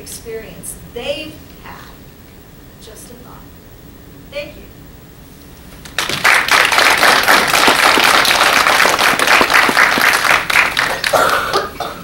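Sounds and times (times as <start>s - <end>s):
audience applauding: 5.8s - 11.7s.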